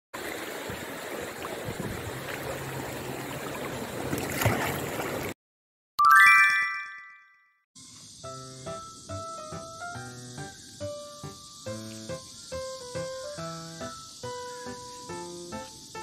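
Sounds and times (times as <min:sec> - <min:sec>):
dog splashing in shallow water: 0:01.4 - 0:05.3
bright rising chime: 0:06.0 - 0:07.5
music: 0:07.8 - 0:16.0.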